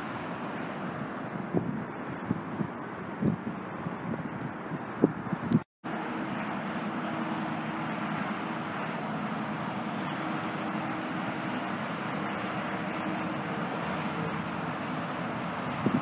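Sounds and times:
traffic noise: 0.0 - 16.0
bus engine humming: 5.9 - 16.0.

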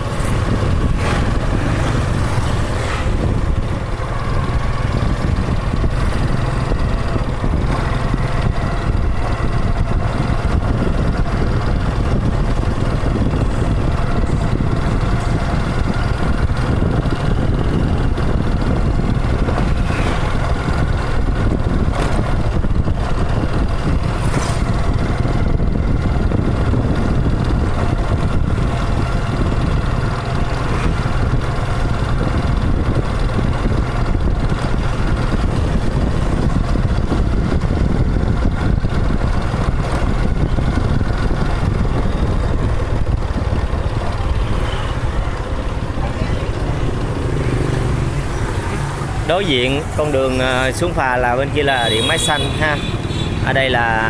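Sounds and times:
wind buffeting microphone: 0.0 - 51.8
motorbike engine running: 0.0 - 54.0.

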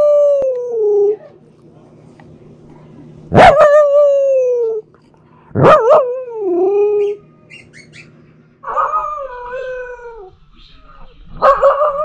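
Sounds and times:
puppy howling: 5.6 - 10.3, 11.4 - 12.0.

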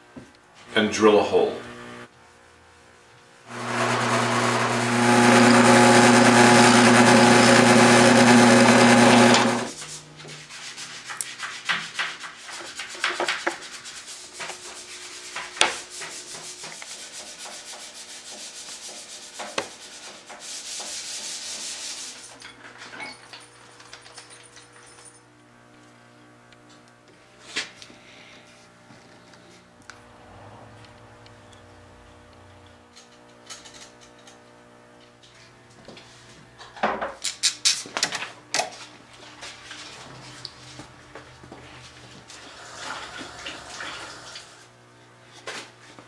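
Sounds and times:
drill press drilling wood: 3.5 - 9.8.

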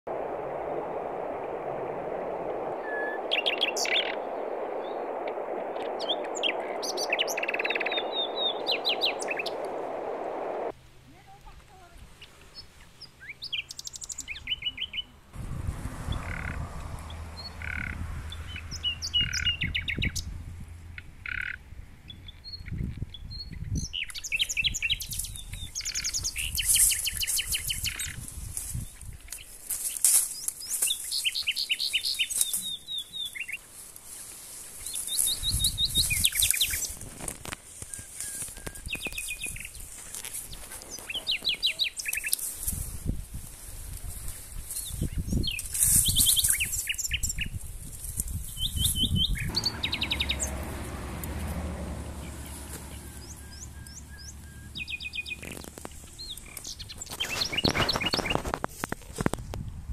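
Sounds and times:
songbirds chirping and trilling: 2.8 - 10.7, 12.2 - 15.3, 16.0 - 37.0, 44.1 - 58.6.

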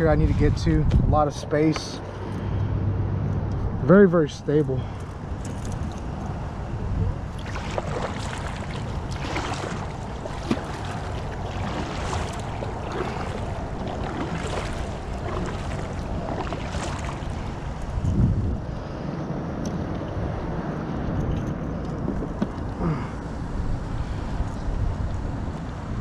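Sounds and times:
wind rumble on microphone: 0.0 - 26.0
kayak paddle splashing in water: 7.2 - 18.2.

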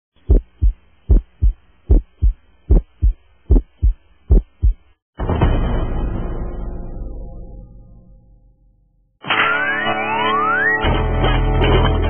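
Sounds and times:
heartbeat thumps: 0.2 - 5.0
loud ringing boom: 5.2 - 8.8.

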